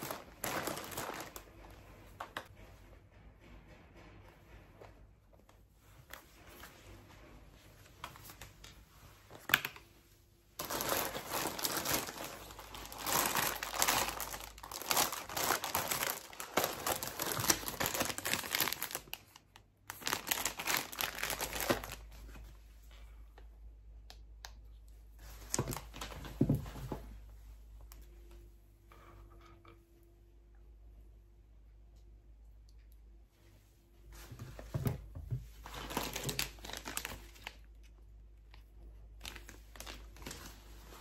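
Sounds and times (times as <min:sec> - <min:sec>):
plastic bag crinkling: 0:00.0 - 0:02.4, 0:10.6 - 0:22.2, 0:35.6 - 0:37.8, 0:39.2 - 0:41.0.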